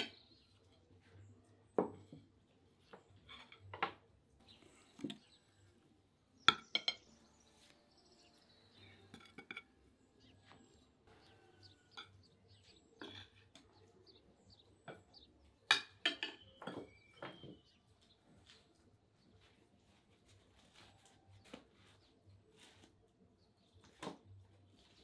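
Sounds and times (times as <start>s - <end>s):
cutlery scraping plates: 8.9s - 9.9s, 11.1s - 13.8s, 14.9s - 17.6s
cutlery clinking on plates: 9.0s - 9.9s, 11.1s - 13.8s, 14.8s - 17.6s.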